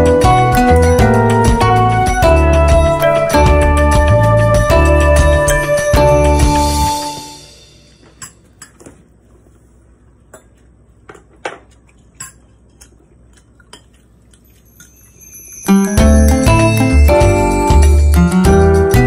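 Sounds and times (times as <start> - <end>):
background music: 0.0 - 8.3, 14.9 - 19.0
chopsticks and cutlery clinking on dishes: 8.0 - 9.1, 10.2 - 15.8.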